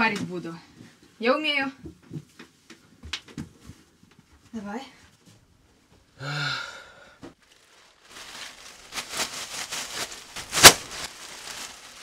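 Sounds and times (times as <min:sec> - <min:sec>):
leafy broom swishing and rustling: 0:07.9 - 0:12.0
sharp slap: 0:10.5 - 0:10.9.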